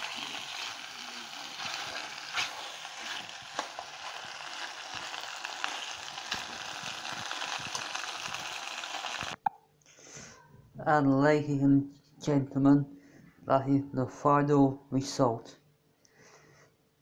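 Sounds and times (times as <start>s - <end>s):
meat and pasta sizzling in a pan: 0.0s - 9.4s.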